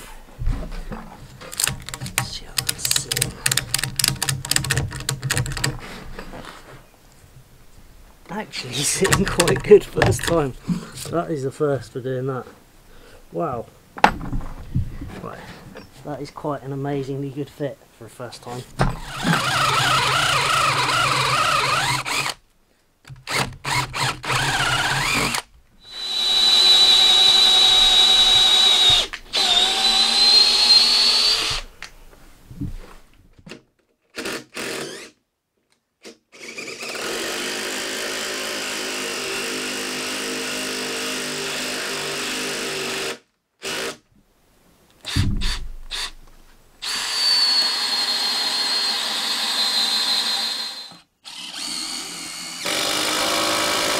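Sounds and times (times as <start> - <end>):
power drill whining: 18.9 - 22.4, 23.3 - 31.7, 34.2 - 35.2, 36.4 - 44.0, 45.4 - 46.2, 46.8 - 53.9.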